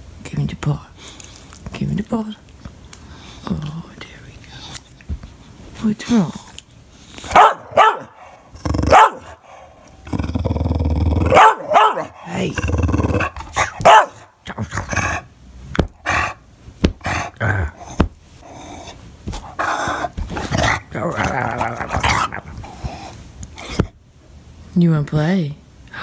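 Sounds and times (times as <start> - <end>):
dog yelping and barking: 7.3 - 9.4, 11.3 - 12.3, 13.2 - 14.3
dog growling: 7.3 - 16.4, 17.0 - 23.9.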